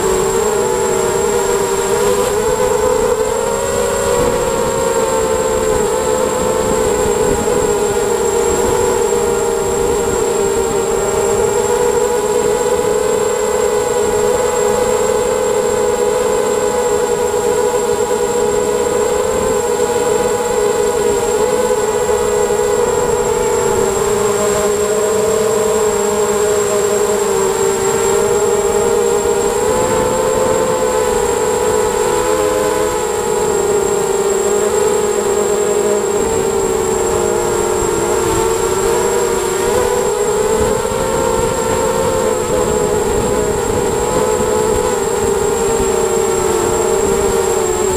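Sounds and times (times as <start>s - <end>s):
drone motors and propellers whining: 0.0s - 47.9s
steady high-pitched whine: 0.0s - 47.9s.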